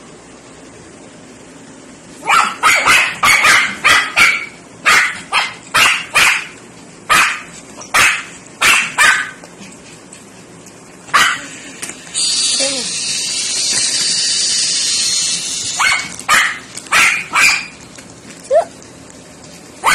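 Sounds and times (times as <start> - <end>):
puppy barking: 2.2 - 9.4, 11.1 - 11.6, 15.7 - 17.8.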